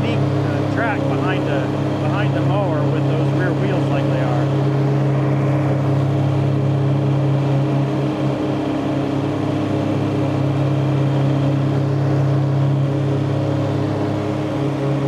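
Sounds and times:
rotary mower cutting grass: 0:00.0 - 0:15.0
tractor engine running under load: 0:00.0 - 0:15.0.

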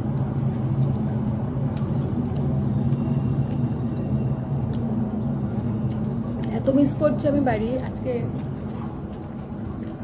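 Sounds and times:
person chewing food: 0:00.0 - 0:06.5
steady low hum: 0:00.0 - 0:10.0.

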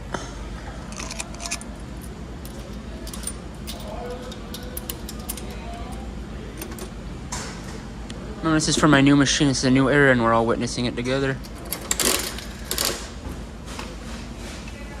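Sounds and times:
coins clinking: 0:00.9 - 0:06.0, 0:06.6 - 0:06.9, 0:11.4 - 0:13.0
vending machine crank clicking: 0:02.4 - 0:06.0, 0:06.6 - 0:06.9, 0:11.4 - 0:13.1.

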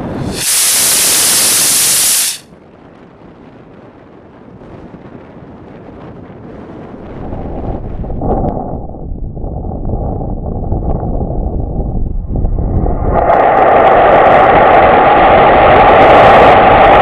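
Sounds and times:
rocket motor exhaust hiss: 0:00.0 - 0:02.5
wind on microphone: 0:00.0 - 0:17.0.

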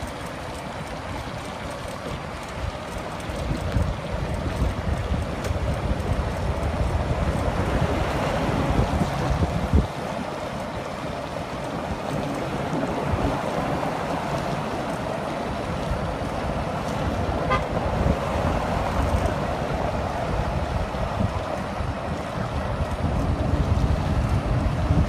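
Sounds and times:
traffic on a steel-grate bridge: 0:00.0 - 0:25.0
wind buffeting microphone: 0:00.0 - 0:25.0
short horn toot: 0:17.4 - 0:17.7.

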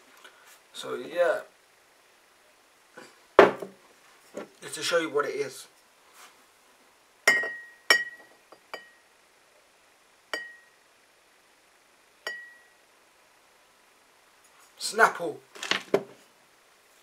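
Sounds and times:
glass bottle clinking on mug: 0:07.3 - 0:09.0, 0:10.4 - 0:10.7.

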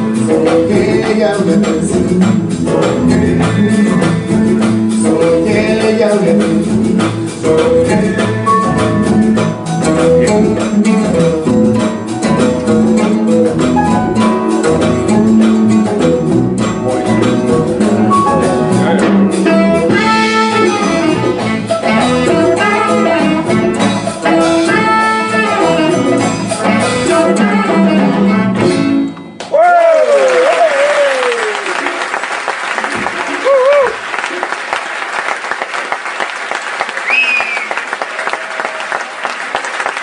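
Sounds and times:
saxophone and brass melody: 0:00.0 - 0:29.4
guitars: 0:00.0 - 0:29.6
piano: 0:00.0 - 0:31.6
congas: 0:00.0 - 0:32.0.

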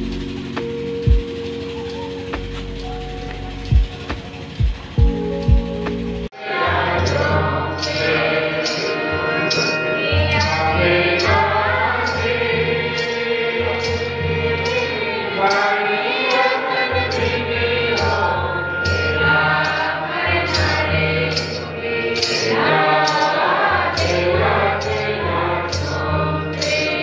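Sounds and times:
steady drum beat: 0:00.0 - 0:27.0
choir and congregation singing hymn: 0:06.3 - 0:27.0
metallic percussion tapping: 0:07.0 - 0:27.0.

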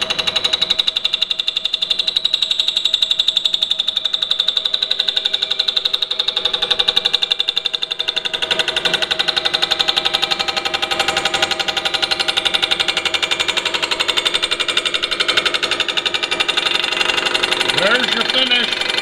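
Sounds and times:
milling cutter hammering on metal: 0:04.8 - 0:19.0.

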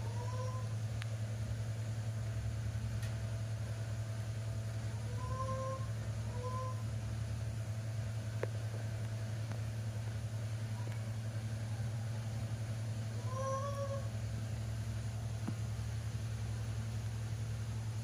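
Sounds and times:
steady low hum: 0:00.0 - 0:18.0
baby monkey squeaking: 0:13.3 - 0:14.1.

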